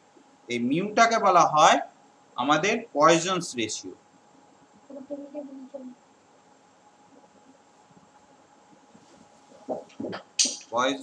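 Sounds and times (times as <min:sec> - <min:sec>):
faint hiss and hum: 0:00.0 - 0:11.0
woman speaking: 0:04.9 - 0:06.0, 0:09.5 - 0:10.4.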